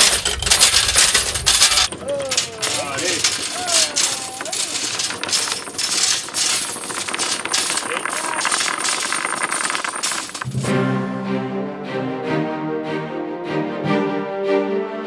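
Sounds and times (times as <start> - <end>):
metal chain clinking and rattling: 0.0 - 10.6.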